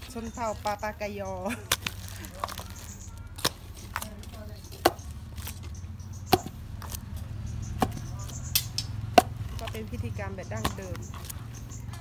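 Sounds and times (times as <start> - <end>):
wooden pestle pounding rice: 6.2 - 12.0.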